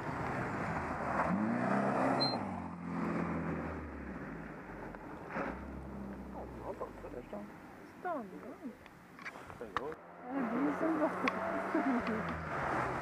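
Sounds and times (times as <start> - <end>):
rally car engine at high revs: 0.0 - 6.3, 10.0 - 13.0.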